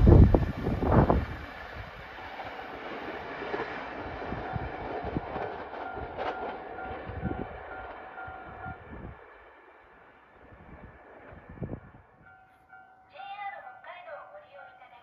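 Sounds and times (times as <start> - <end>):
train rumbling past: 0.0 - 15.0.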